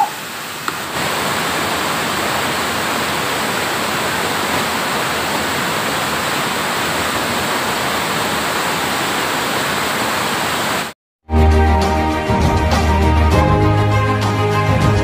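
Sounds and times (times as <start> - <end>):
waterfall roaring: 0.0 - 10.9.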